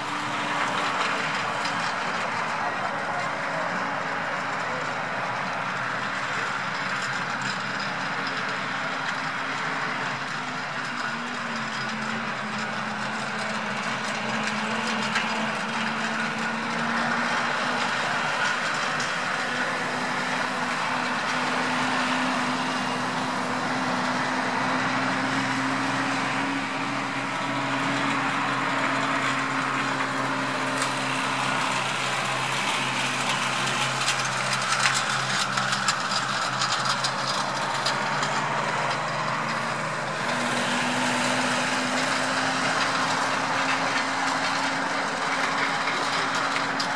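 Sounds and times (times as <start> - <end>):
constant rushing noise: 0.0 - 46.9
engine humming: 0.0 - 46.9.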